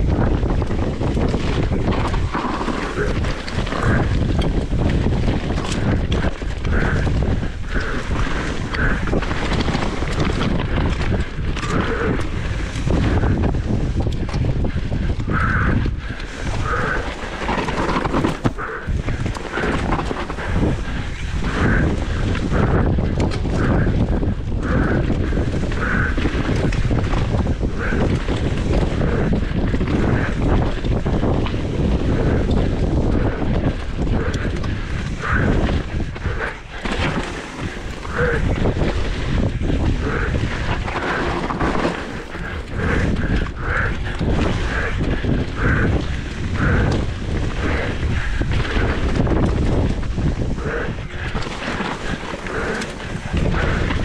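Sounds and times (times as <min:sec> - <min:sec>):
bike rattle: 0:00.0 - 0:54.0
wind buffeting microphone: 0:00.0 - 0:54.0
bike knocking on rough ground: 0:16.5 - 0:54.0.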